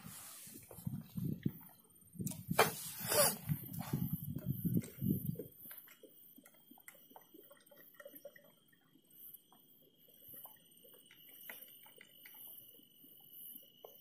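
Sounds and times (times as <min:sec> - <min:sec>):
faint ticks: 0:04.4 - 0:14.0.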